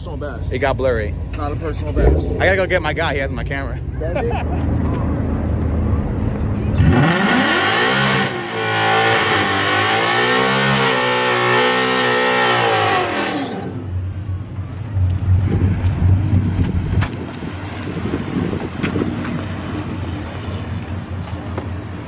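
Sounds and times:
car engine revving high: 1.9 - 3.0, 6.8 - 13.9.

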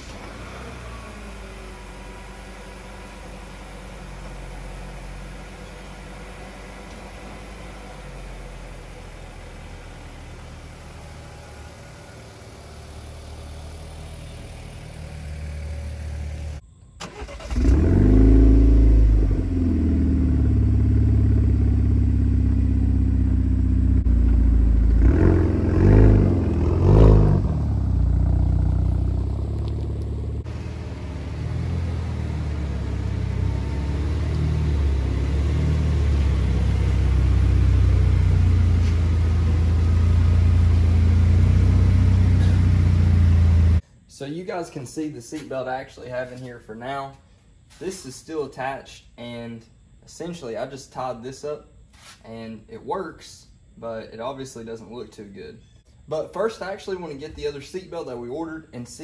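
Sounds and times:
engine idling: 0.0 - 17.8, 18.9 - 25.2
car engine starting and revving: 0.0 - 43.8
engine low rumble: 0.0 - 59.0.

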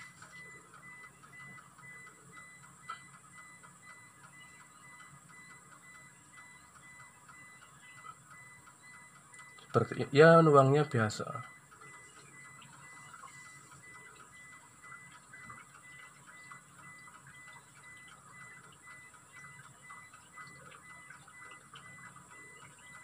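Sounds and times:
oil trickling: 0.0 - 23.0
soft light ticks: 0.2 - 9.7.

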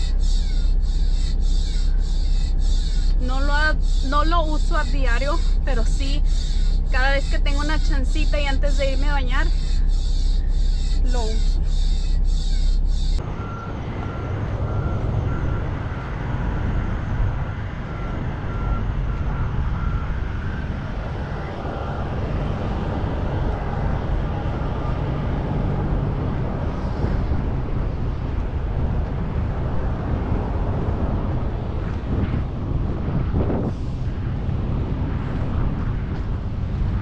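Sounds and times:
faint beeping: 0.0 - 26.2
diesel truck engines rumbling: 0.0 - 37.0.

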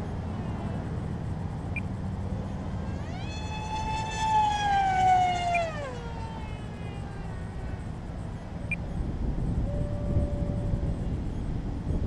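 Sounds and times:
wind rumble on microphone: 0.0 - 12.0
model jet whining fly-by: 2.0 - 11.6.

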